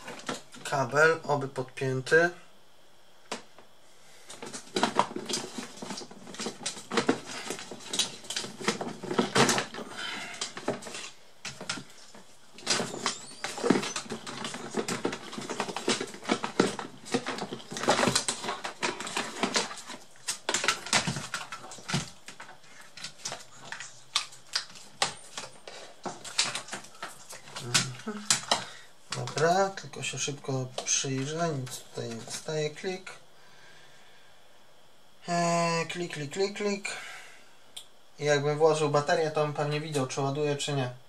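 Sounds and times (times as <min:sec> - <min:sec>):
hands handling cables: 0:04.3 - 0:29.8.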